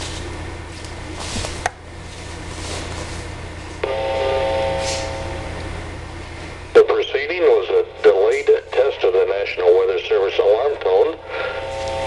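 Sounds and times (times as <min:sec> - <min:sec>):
low hum: 0:00.0 - 0:12.0
radio static hiss: 0:03.8 - 0:12.0.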